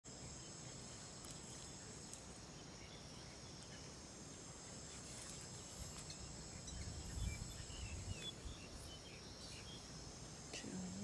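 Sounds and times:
high-pitched insect drone: 0.1 - 11.0.

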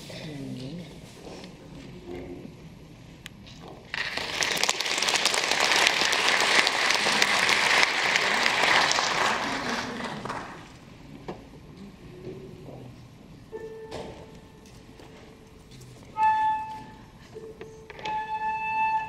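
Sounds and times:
audience applauding: 3.9 - 10.8.

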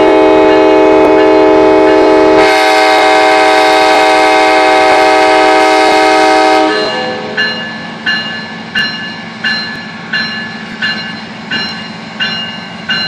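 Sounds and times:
locomotive air horn: 0.0 - 7.4
train wheels clacking over rail joint: 7.3 - 13.0.

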